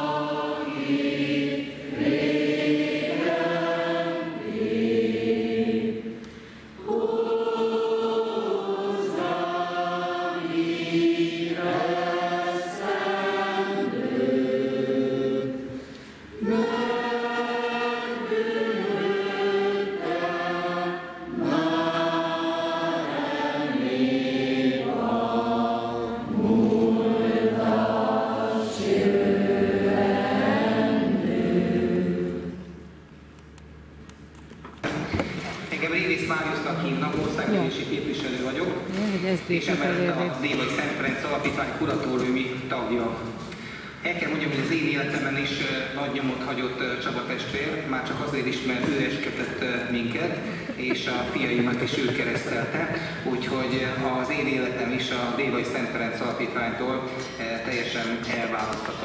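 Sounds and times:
group singing together: 0:00.0 - 0:33.0.

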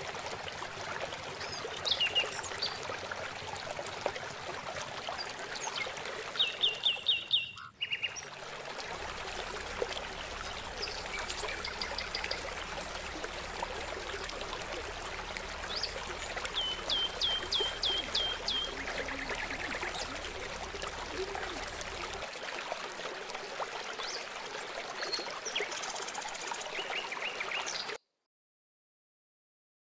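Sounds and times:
water trickling: 0:00.0 - 0:28.0
bird calling: 0:06.4 - 0:08.2, 0:10.1 - 0:22.2.

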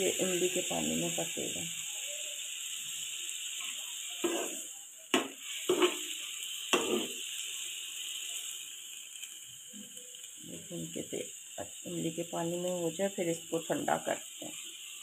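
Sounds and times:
pan simmering hiss: 0:00.0 - 0:15.0
steel ladle scraping a wok: 0:04.2 - 0:04.7, 0:05.3 - 0:07.4.

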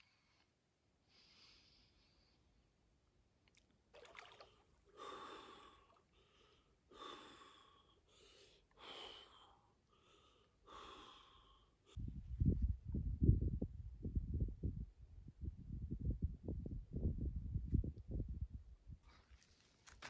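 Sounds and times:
man gasping breaths: 0:04.9 - 0:12.0.

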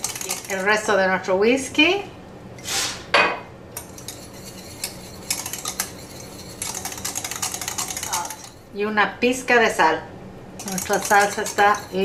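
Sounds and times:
whisk scraping metal saucepan: 0:00.0 - 0:00.9, 0:03.8 - 0:08.7, 0:10.6 - 0:12.0.

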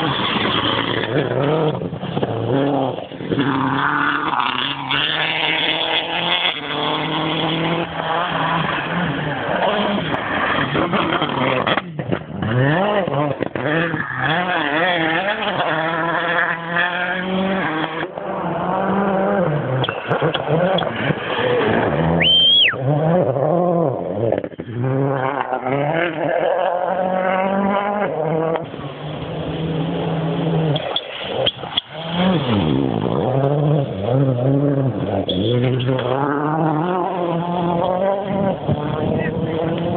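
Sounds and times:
rally car engines revving: 0:00.0 - 0:39.9
high whistle: 0:22.2 - 0:22.8.

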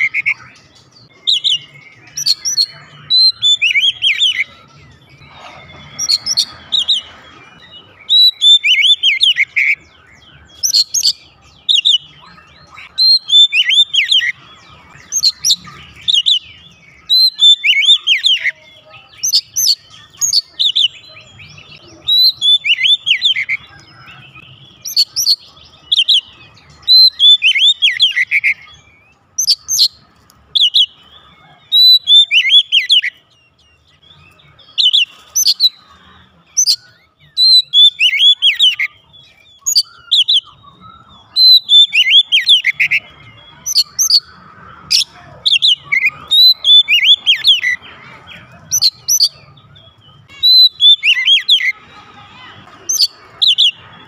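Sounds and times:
bird singing clear whistles: 0:36.5 - 0:44.3.

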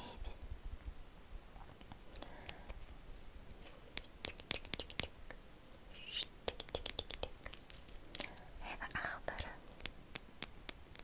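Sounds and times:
sharp clicks of beads: 0:03.9 - 0:05.1, 0:06.1 - 0:08.4, 0:09.4 - 0:11.0.

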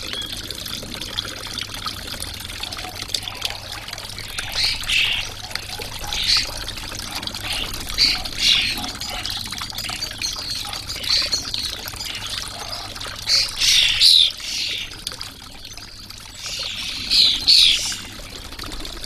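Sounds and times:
fountain water trickling: 0:00.0 - 0:19.0
sparrows chirping: 0:04.2 - 0:06.7, 0:07.4 - 0:15.0, 0:15.8 - 0:18.0.

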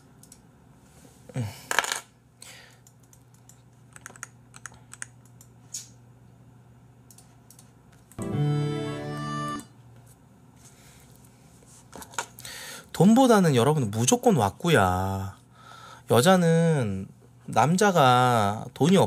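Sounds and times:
computer keyboard key clicks: 0:02.8 - 0:05.9, 0:07.1 - 0:07.7
short electronic music: 0:08.2 - 0:09.7.

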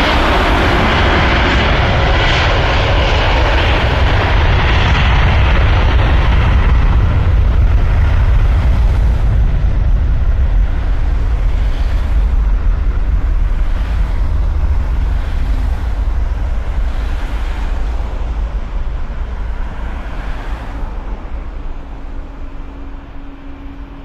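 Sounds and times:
deep rumble: 0:00.0 - 0:24.0
cars passing: 0:10.6 - 0:24.0.

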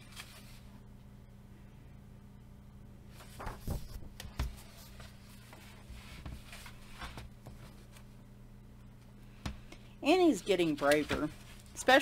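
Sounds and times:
paper page rustling: 0:00.0 - 0:00.7, 0:03.1 - 0:08.1, 0:10.4 - 0:11.8.

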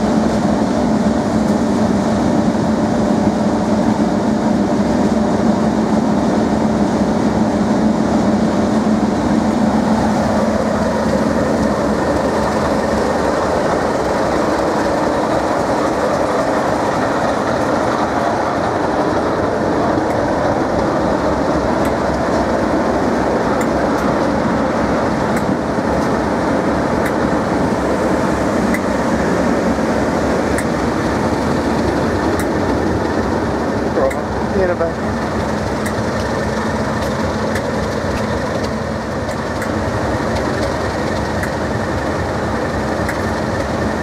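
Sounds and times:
diesel locomotive engines: 0:00.0 - 0:44.0
wheels clicking over rail joints: 0:09.6 - 0:44.0.

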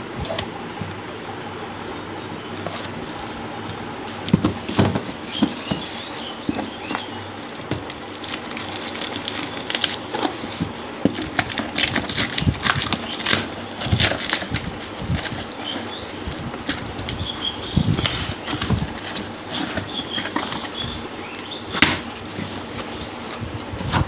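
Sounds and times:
plastic wrap and tape crackling: 0:04.0 - 0:21.1.

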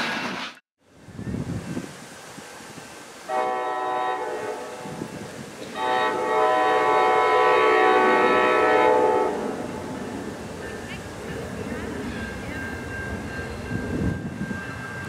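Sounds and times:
train rumble: 0:00.0 - 0:15.0
train air horn blasts: 0:03.3 - 0:09.9.

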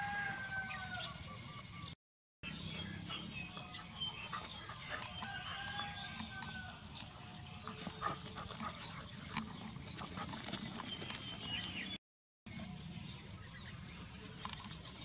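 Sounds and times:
dogs play-fighting vocalizations: 0:03.0 - 0:05.2, 0:07.6 - 0:11.6.

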